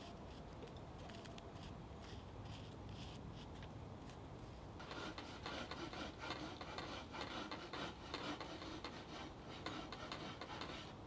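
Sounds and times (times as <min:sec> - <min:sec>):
pencil scratching over wood: 0:01.6 - 0:04.2, 0:04.8 - 0:11.0.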